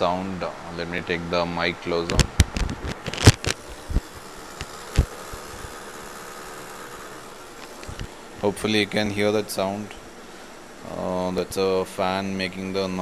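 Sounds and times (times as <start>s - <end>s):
laptop fan whirring: 0.0s - 13.0s
clip-on microphone handling clicks: 2.0s - 5.7s.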